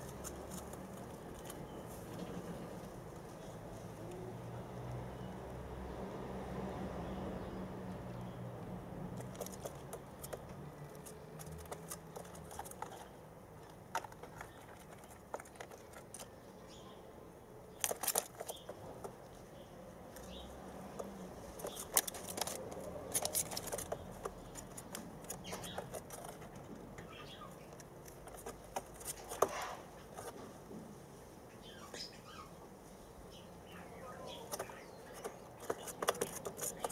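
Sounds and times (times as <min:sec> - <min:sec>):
doves clicking and tapping: 0:09.1 - 0:16.4, 0:17.7 - 0:30.4, 0:34.4 - 0:36.9.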